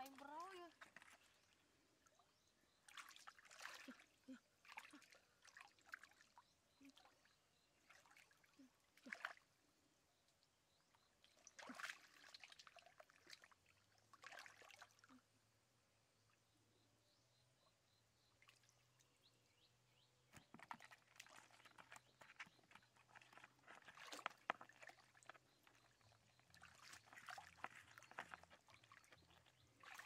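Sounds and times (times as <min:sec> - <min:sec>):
hands splashing in shallow water: 0:20.4 - 0:30.0.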